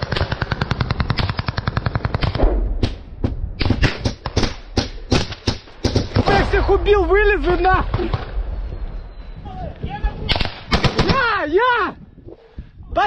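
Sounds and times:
automatic rifle gunfire: 10.3s - 11.2s
single rifle shots: 10.3s - 11.2s.

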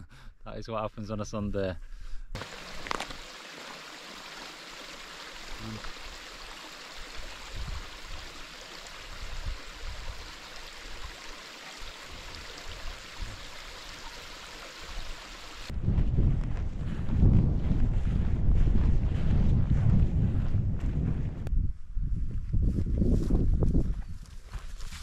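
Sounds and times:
running water rushing: 2.4s - 15.7s.

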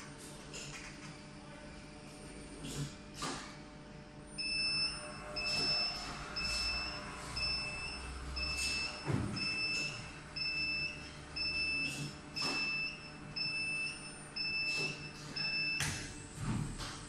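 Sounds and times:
high warning beeps: 4.4s - 16.0s.

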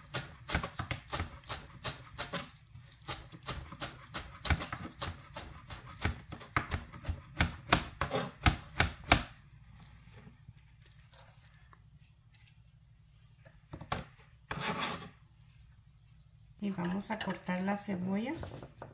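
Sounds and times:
knife chopping on cutting board: 0.0s - 9.3s.

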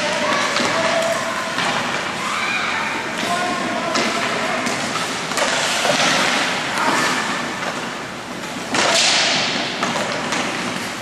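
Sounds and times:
hockey sticks clattering: 0.0s - 2.3s, 3.0s - 11.0s
skate blades scraping ice: 3.2s - 11.0s
loud sudden skate scrapes: 5.4s - 7.3s.

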